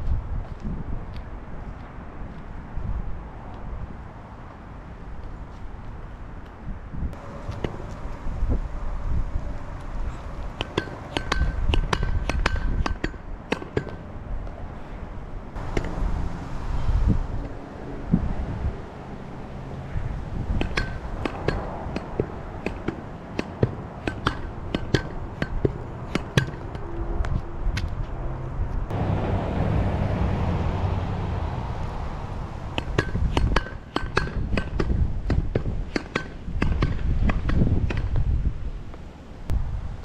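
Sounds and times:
wind rumble on microphone: 0.0s - 40.0s
pogo stick clanking on pavement: 10.0s - 14.1s, 20.5s - 26.8s, 32.8s - 38.2s.

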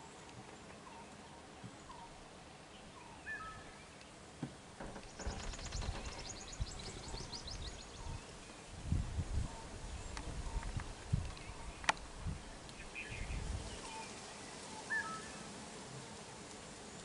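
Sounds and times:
bird whistled call: 3.2s - 3.7s, 14.9s - 15.4s
bird trill of high chirps: 5.0s - 8.2s.

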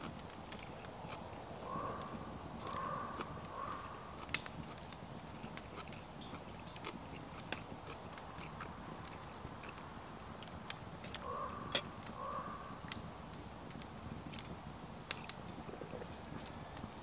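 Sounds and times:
close chewing: 0.0s - 9.8s
crow cawing: 1.7s - 4.0s, 11.2s - 12.7s.

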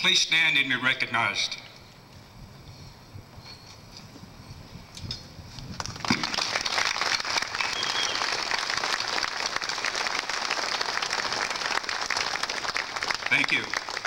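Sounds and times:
audience applause: 5.9s - 14.0s.

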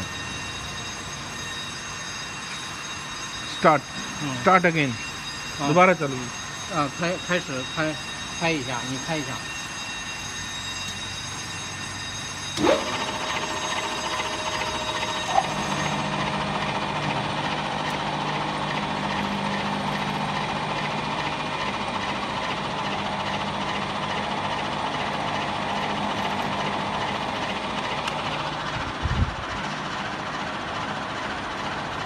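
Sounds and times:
blade grinder whirring: 12.6s - 18.0s.

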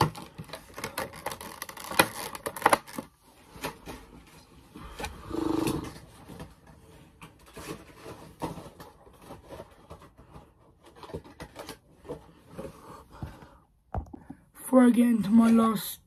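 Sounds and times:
objects knocking and clicking: 13.2s - 14.5s.

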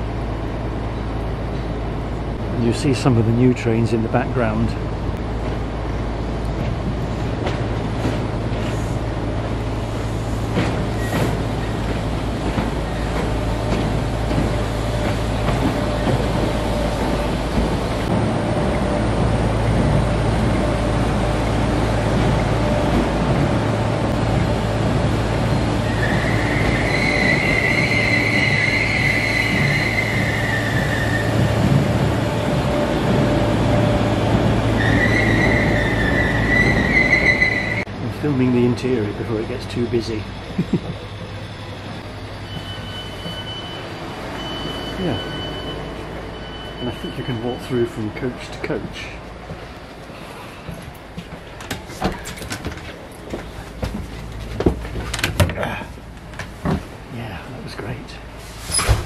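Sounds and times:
electric train running hum: 0.0s - 58.9s
brakes screeching: 34.7s - 37.9s.

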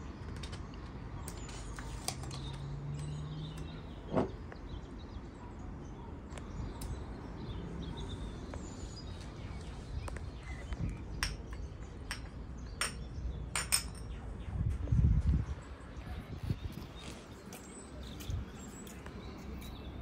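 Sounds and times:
faint birds chirping: 0.0s - 20.0s
kitchen items clicking and tapping: 11.2s - 14.2s.

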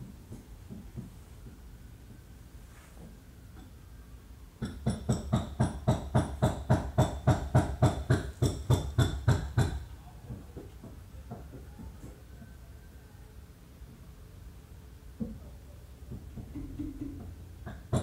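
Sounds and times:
rapid ringing knocks: 4.6s - 9.8s.

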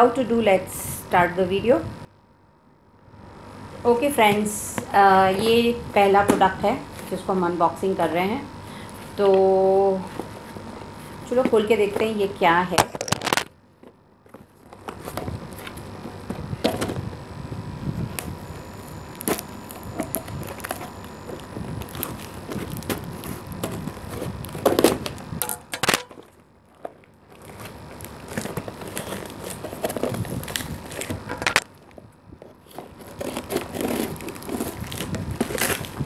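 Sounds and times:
tape ripping: 12.8s - 13.5s, 19.1s - 31.8s, 32.6s - 36.0s
cardboard box rustling: 14.3s - 17.0s, 18.0s - 25.2s, 25.8s - 31.6s, 32.4s - 36.0s
scissors cutting packing tape: 19.1s - 26.3s, 27.4s - 31.7s, 32.6s - 36.0s.

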